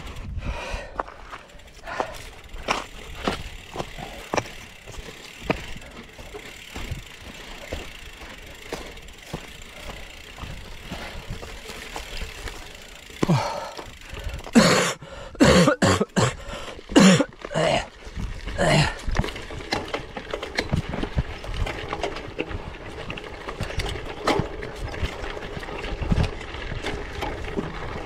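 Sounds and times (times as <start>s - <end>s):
bike tyres rolling on rough ground: 0.0s - 28.0s
small clicks and rattles: 18.1s - 28.0s.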